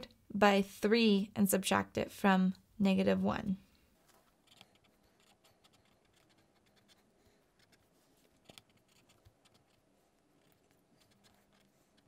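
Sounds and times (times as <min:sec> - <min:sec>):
pen scratching on paper: 0:04.1 - 0:12.0.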